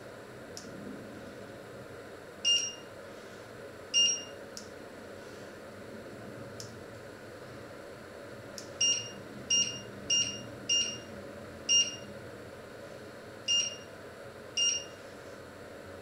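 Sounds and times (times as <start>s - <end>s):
short high two-tone beeps: 2.5s - 2.8s, 4.0s - 4.4s, 8.8s - 11.0s, 13.5s - 13.9s, 14.6s - 14.9s.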